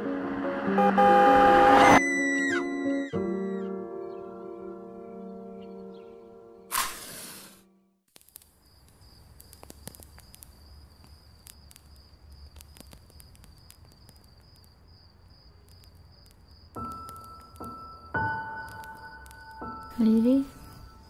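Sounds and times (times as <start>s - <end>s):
music: 0.0s - 6.8s, 16.8s - 21.0s
match struck: 6.7s - 14.7s
crickets trilling: 8.1s - 21.0s
small crackles: 8.1s - 21.0s.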